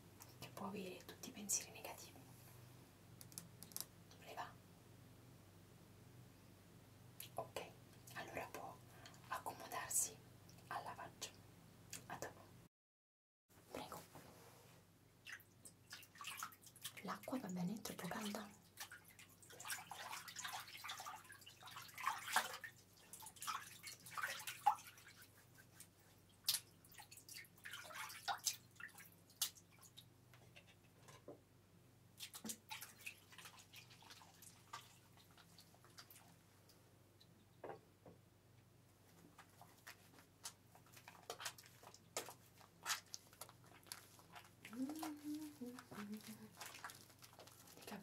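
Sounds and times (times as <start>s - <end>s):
wet crackles and clicks: 3.2s - 3.9s, 26.4s - 26.8s, 29.3s - 29.6s, 39.4s - 48.0s
water dripping and splashing on hair: 15.2s - 30.1s, 32.2s - 36.4s, 39.5s - 48.0s.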